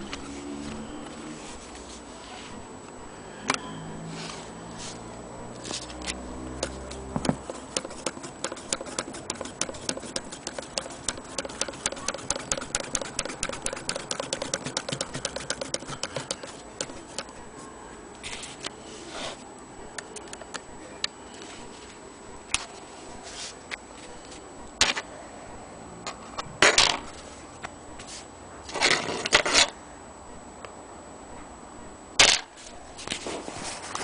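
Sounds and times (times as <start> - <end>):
sewing machine clicking: 6.6 - 17.3.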